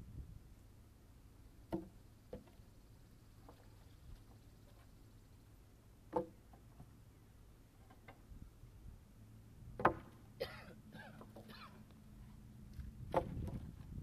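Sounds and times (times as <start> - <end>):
wooden logs knocking: 1.7 - 2.6, 6.1 - 6.9, 9.7 - 10.2, 13.1 - 13.7.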